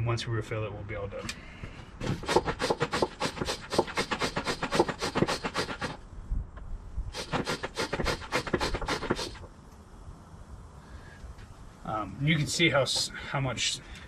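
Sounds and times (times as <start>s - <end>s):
hand vacuum pump strokes: 1.7s - 6.0s, 7.1s - 9.5s.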